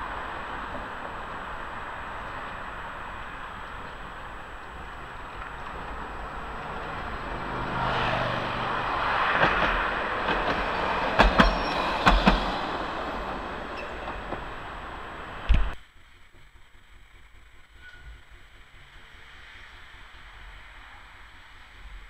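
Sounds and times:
road traffic: 0:00.0 - 0:15.8
tram running on track: 0:00.0 - 0:15.8
wheels clacking over rail joints: 0:00.0 - 0:15.8.

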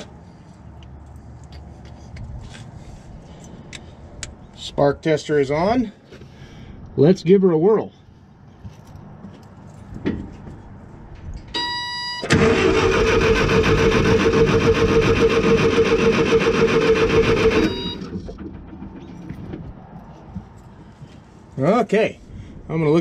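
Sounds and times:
short high beep: 0:11.6 - 0:12.3, 0:17.6 - 0:18.1
engine cranking by starter: 0:12.2 - 0:19.8.

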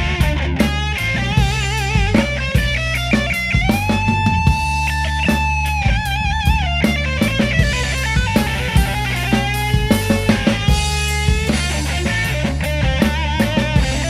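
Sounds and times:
electric guitar lead notes: 0:00.0 - 0:14.0
rock band playing: 0:00.0 - 0:14.0.

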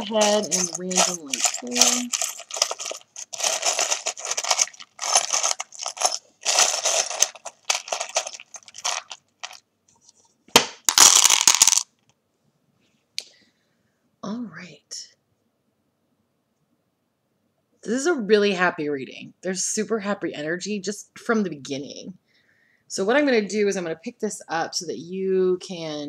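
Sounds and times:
charms clattering onto a mat: 0:00.0 - 0:09.6, 0:10.5 - 0:11.9
small charms rattling in a box: 0:00.0 - 0:09.6, 0:10.9 - 0:11.8.

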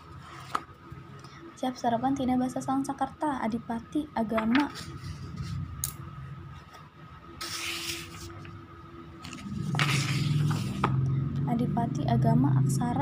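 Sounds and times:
paper pages rustling: 0:04.5 - 0:05.6, 0:07.4 - 0:08.6, 0:09.2 - 0:11.0.

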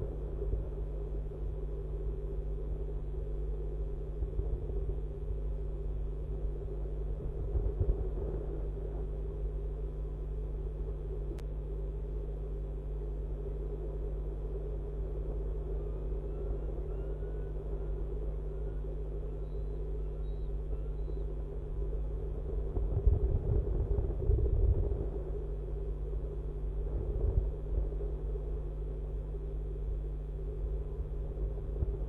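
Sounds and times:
electrical hum: 0:00.0 - 0:32.0
low rumble: 0:21.4 - 0:32.0.

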